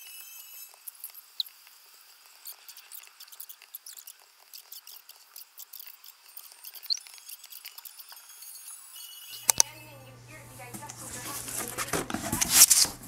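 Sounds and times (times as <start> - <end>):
high chirps: 5.7 - 9.6.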